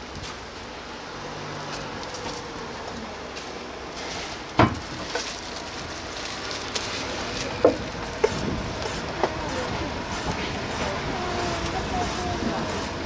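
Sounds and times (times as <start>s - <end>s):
food sizzling: 5.0s - 13.0s.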